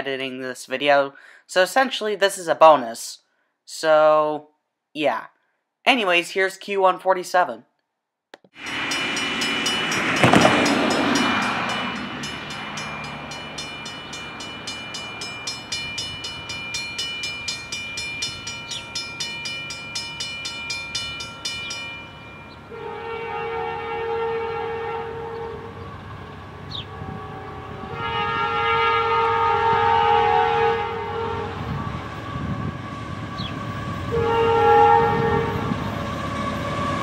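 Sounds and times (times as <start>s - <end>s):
crossing bell ringing rapidly: 8.6s - 22.8s
locomotive horn chord: 22.6s - 26.1s, 26.8s - 32.8s, 33.9s - 35.7s.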